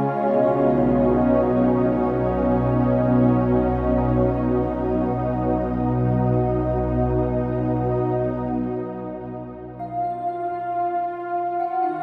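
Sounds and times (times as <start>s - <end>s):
ambient new-age music: 0.0s - 12.0s.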